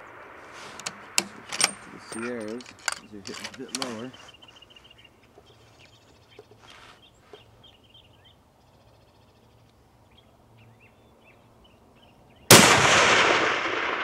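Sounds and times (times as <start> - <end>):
rifle shot: 0.0 - 2.0, 12.5 - 14.0
small birds chirping: 0.0 - 12.5.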